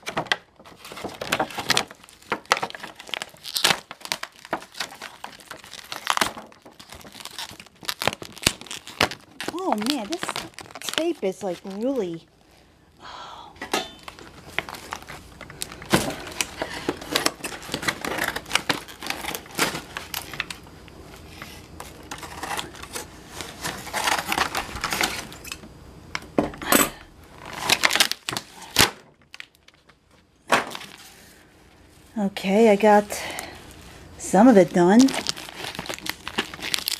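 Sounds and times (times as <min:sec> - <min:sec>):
packing tape peeling: 0:00.0 - 0:12.2, 0:14.0 - 0:20.6, 0:21.2 - 0:25.6, 0:27.4 - 0:29.9, 0:34.4 - 0:36.9
plastic packaging crinkling: 0:00.0 - 0:12.7, 0:13.9 - 0:25.6, 0:27.3 - 0:36.9.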